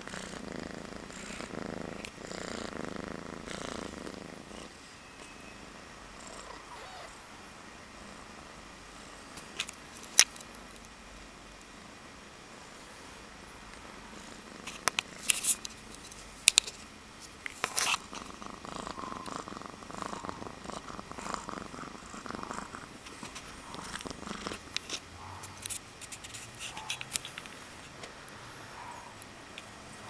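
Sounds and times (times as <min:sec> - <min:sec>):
cat purring: 0:00.0 - 0:07.3, 0:13.8 - 0:15.5, 0:17.6 - 0:25.8.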